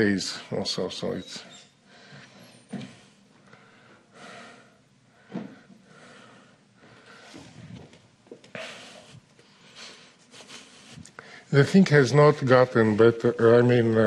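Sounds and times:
soft breaths or sniffs: 8.5s - 11.5s.

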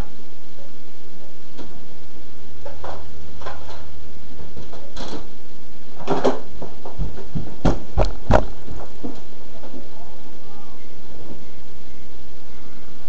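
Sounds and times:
low steady hum: 0.0s - 13.0s
kitchen items knocking and clunking: 6.0s - 9.8s.

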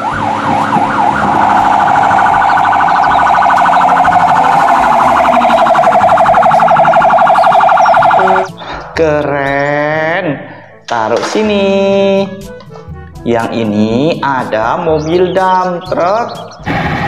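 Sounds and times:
fire engine siren yelping: 0.0s - 8.6s.

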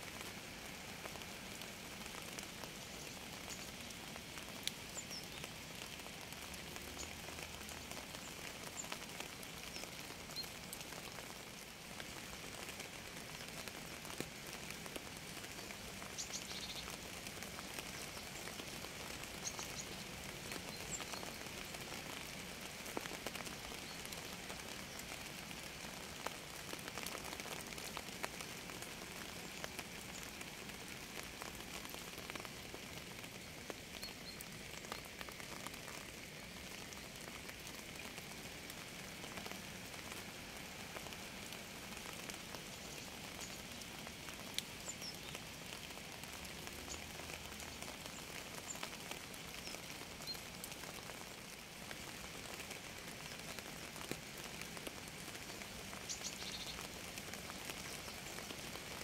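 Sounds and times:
steady rain falling: 0.0s - 59.0s
raindrop clicks: 2.7s - 5.5s, 43.4s - 49.0s.

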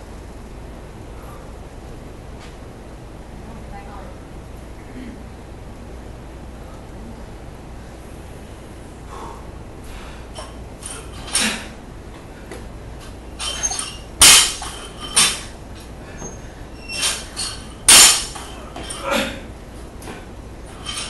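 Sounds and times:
barbell plates clinking: 13.3s - 15.5s, 16.2s - 19.1s, 20.7s - 21.0s
barbell clanking loudly: 13.4s - 15.5s, 16.2s - 19.2s, 20.7s - 21.0s.

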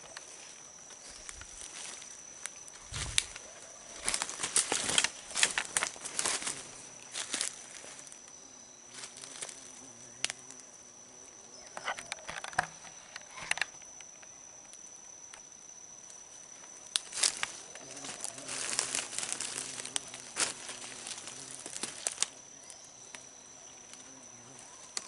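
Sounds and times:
rustling and crinkling: 0.0s - 8.2s, 16.9s - 22.8s
high-pitched insect whine: 0.0s - 25.0s.

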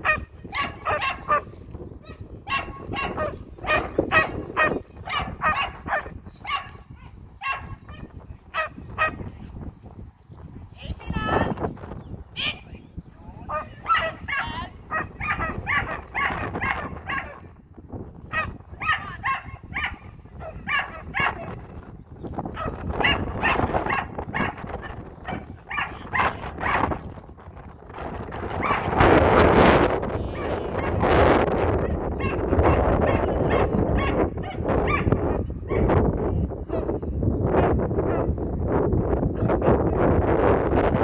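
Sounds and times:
dog barking: 0.0s - 9.2s, 13.5s - 17.5s, 18.3s - 21.6s, 22.5s - 26.9s, 28.6s - 29.0s, 30.4s - 31.0s, 31.8s - 35.9s, 36.7s - 37.0s, 37.6s - 38.3s, 39.3s - 39.8s.

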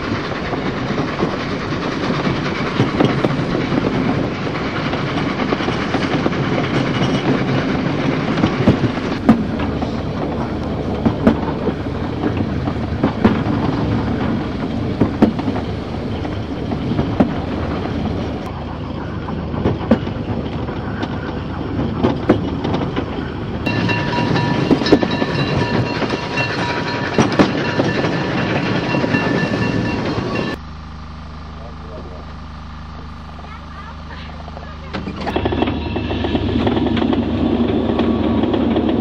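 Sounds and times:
wheels clicking over rail joints: 0.0s - 30.6s, 33.4s - 39.0s
train rumbling: 0.0s - 39.0s
high ringing tone: 23.7s - 33.4s.

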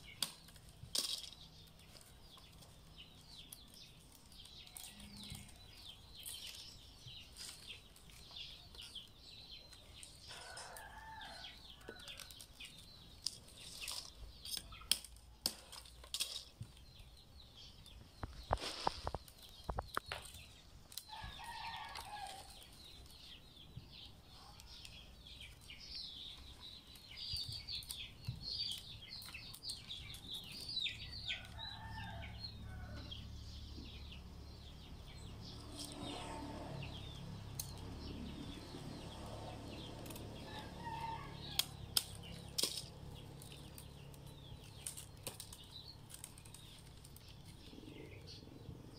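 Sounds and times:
rattan strands rustling and clicking: 0.0s - 8.9s, 10.0s - 16.8s, 39.6s - 47.6s.

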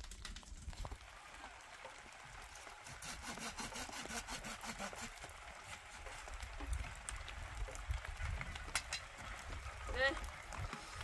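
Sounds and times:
rasping strokes: 2.8s - 5.2s.

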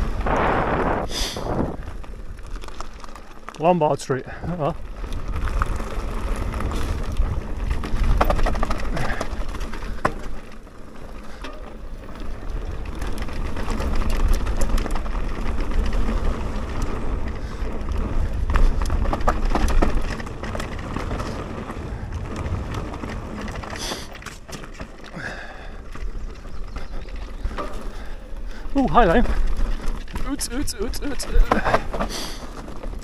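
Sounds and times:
wind on microphone: 0.0s - 2.2s
bike tyres rumbling over rough ground: 0.0s - 33.0s.

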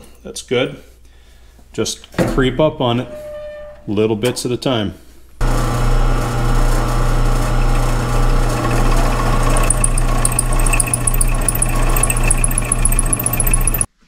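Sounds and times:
drill press motor hum: 5.4s - 13.9s
drill bit grinding into metal: 7.1s - 13.9s
high squeak of drill bit: 8.6s - 13.9s.

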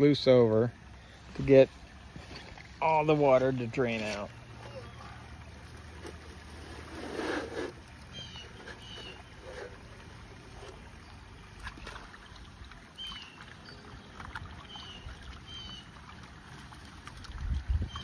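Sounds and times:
water splashing and draining: 4.3s - 18.0s.

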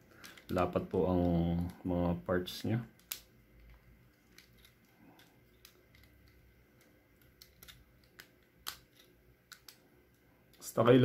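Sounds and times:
plastic toy parts clicking: 0.1s - 1.8s, 2.9s - 9.8s.

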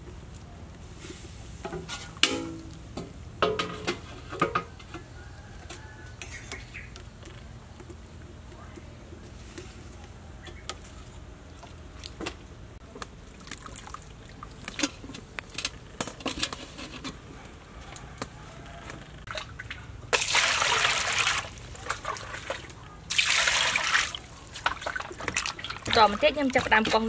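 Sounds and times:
water sloshing in a metal pot: 19.3s - 27.0s.

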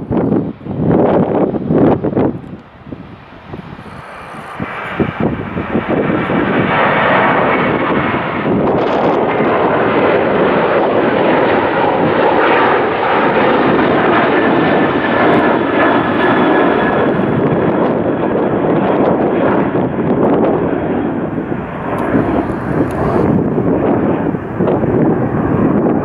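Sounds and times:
high engine whine: 0.0s - 26.0s
jet engines roaring: 0.0s - 26.0s.

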